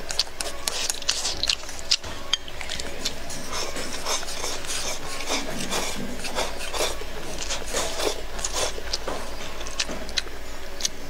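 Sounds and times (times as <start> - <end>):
person chewing: 0.0 - 11.0
person slurping noodles: 2.6 - 9.9.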